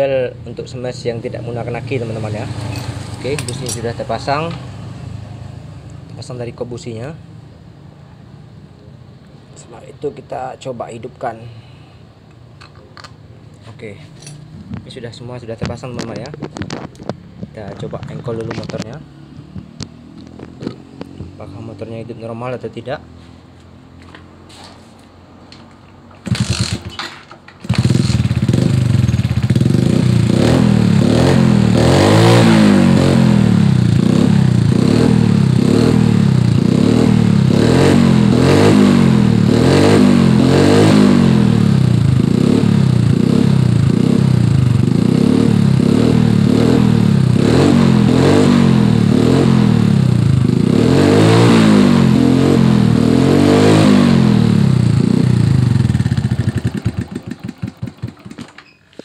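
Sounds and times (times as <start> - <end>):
motorcycle engine kick-started: 26.1 - 29.8, 55.5 - 59.0
motorcycle engine idling: 27.6 - 30.3, 54.8 - 58.6.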